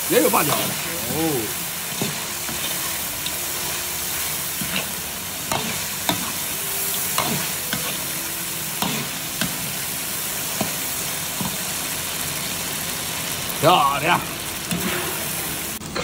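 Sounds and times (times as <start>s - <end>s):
chicken sizzling in hot oil: 0.0s - 16.0s
metal spatula scraping a wok: 1.8s - 8.1s, 14.7s - 16.0s.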